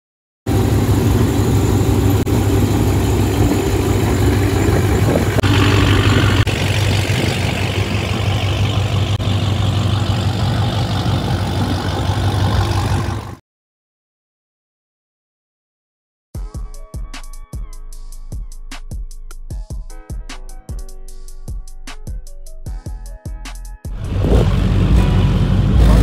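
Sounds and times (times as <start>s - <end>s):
car engines idling: 0.5s - 13.4s, 24.0s - 26.0s.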